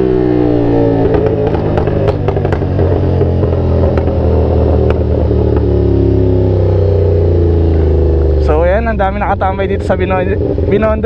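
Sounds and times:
motorcycle engine running: 0:00.0 - 0:11.0
sharp clicks and knocks: 0:01.0 - 0:05.8.

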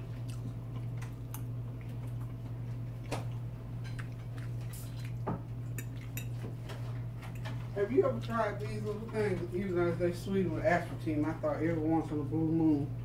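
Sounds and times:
quiet chewing: 0:00.0 - 0:08.7.

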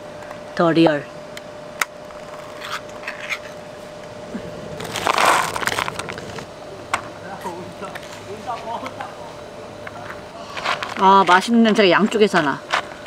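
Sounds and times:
faint steady hum: 0:00.0 - 0:13.0
dense crinkling crunch: 0:04.8 - 0:06.5.

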